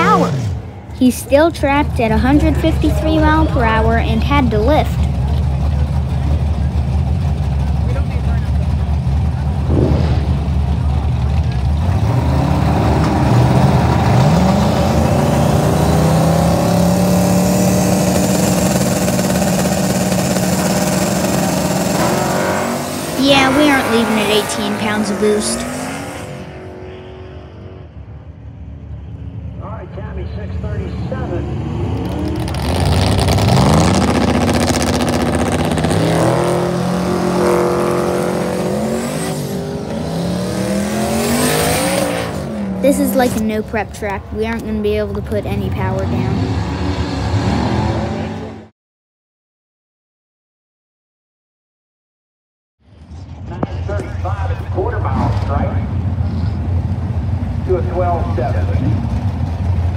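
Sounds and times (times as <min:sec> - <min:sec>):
truck engine revving high: 0:00.0 - 0:28.3, 0:29.4 - 0:48.7
race car engine running: 0:00.0 - 0:48.6, 0:52.9 - 0:59.9.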